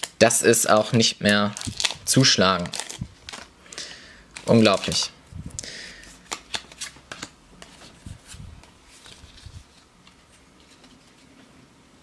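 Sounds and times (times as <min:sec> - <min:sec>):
cards and packaging rustling: 0:00.7 - 0:05.1, 0:05.9 - 0:11.3.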